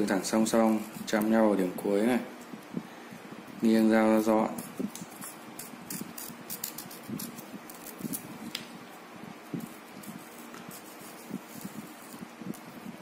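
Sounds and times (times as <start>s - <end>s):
low steady hiss: 0.0s - 13.0s
knife cutting watermelon rind: 4.5s - 8.3s.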